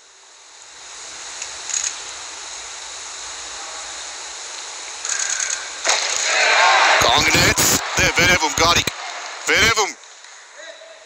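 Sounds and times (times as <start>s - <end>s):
crowd roaring: 5.9s - 10.0s.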